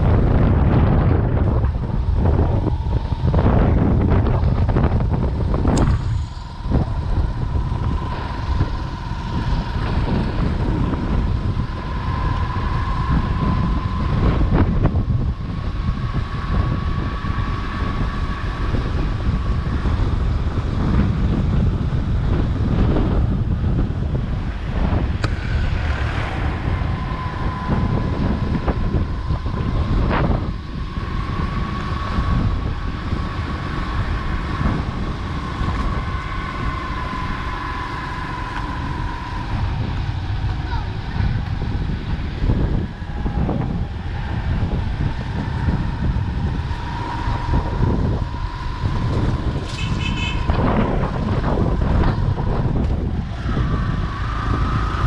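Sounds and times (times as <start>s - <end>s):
motorcycle rumble: 0.0s - 55.0s
thin steady whine: 0.0s - 55.0s
wind buffeting microphone: 0.0s - 55.0s.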